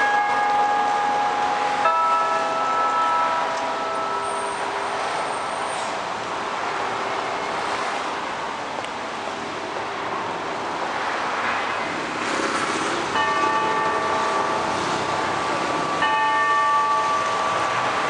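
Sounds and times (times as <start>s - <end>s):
clock tower bell ringing: 0.0s - 5.6s, 13.2s - 18.0s
city traffic: 0.0s - 18.0s.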